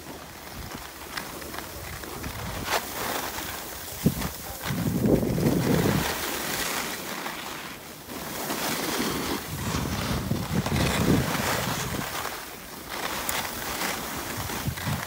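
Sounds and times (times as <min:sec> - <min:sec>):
skis scraping over snow: 0:00.0 - 0:15.0
wind on microphone: 0:01.8 - 0:06.3, 0:09.4 - 0:12.4, 0:14.2 - 0:15.0.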